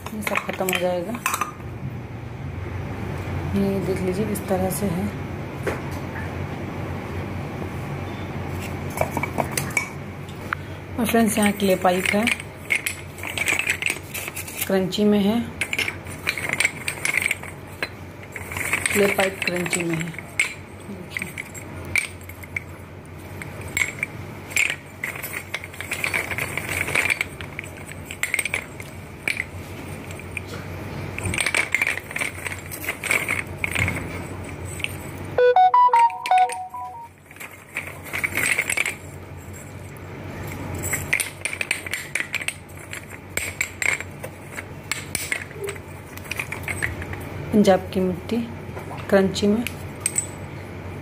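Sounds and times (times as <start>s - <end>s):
clay pipes clinking: 11.0s - 14.8s, 15.6s - 35.2s, 36.0s - 47.2s
clear pitched notes: 35.4s - 37.1s.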